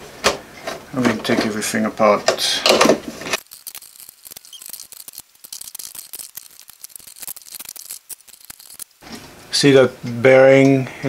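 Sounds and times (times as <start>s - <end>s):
plastic and metal parts clicking: 2.7s - 9.0s.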